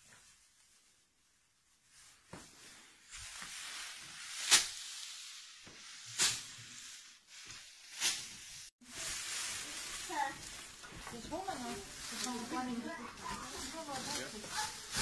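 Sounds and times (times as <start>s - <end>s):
straw rustling and hissing: 1.8s - 15.0s
straw bundles striking wooden wheel: 9.6s - 15.0s.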